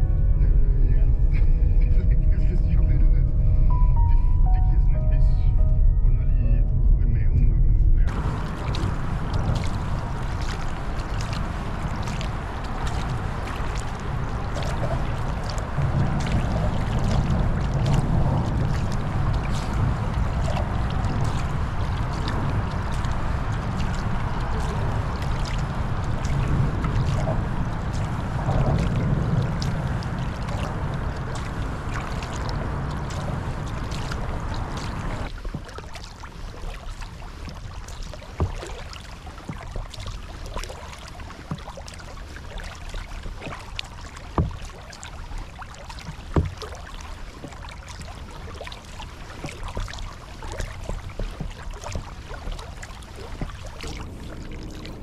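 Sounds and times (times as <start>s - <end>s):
steady rushing noise: 6.4s - 35.6s, 43.2s - 55.0s
paddle splashing through water: 8.1s - 55.0s.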